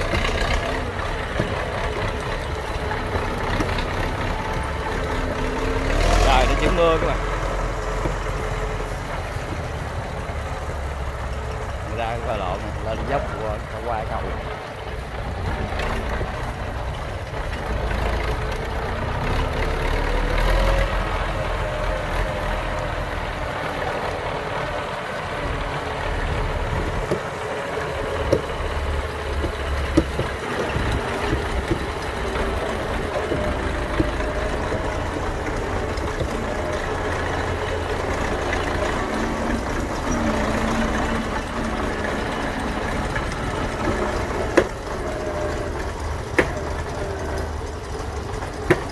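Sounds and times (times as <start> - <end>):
tractor diesel engine running: 0.0 - 48.9
sharp knocks: 26.8 - 37.4, 48.6 - 48.9.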